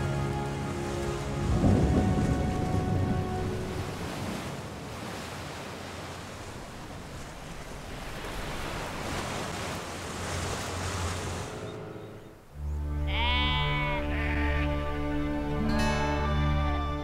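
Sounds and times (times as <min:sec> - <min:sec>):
sea water churning: 0:00.0 - 0:12.4.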